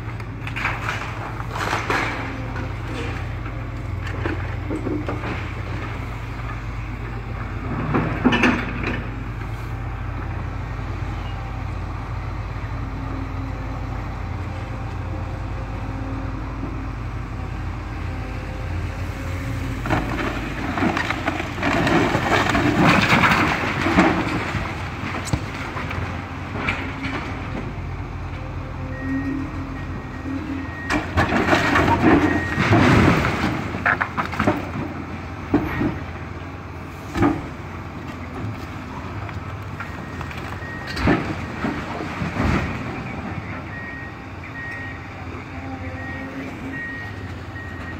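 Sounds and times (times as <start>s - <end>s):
masonry crunching and clattering: 0.0s - 9.2s, 19.8s - 27.8s, 30.8s - 36.3s, 37.1s - 43.8s
excavator diesel engine running: 0.0s - 47.9s.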